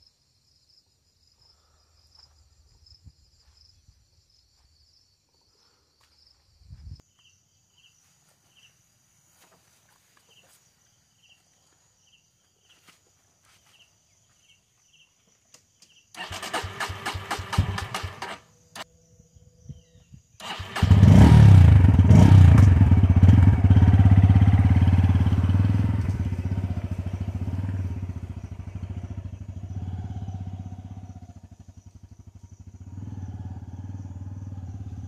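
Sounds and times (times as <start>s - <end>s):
insect trilling: 26.3s - 35.0s.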